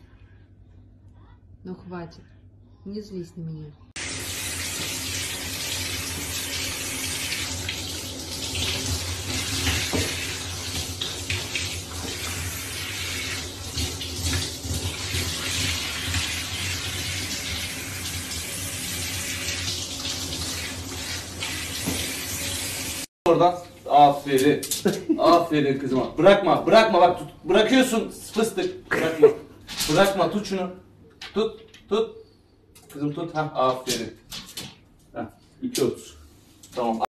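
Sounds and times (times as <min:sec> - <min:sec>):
shower head spraying water: 0:04.0 - 0:23.1.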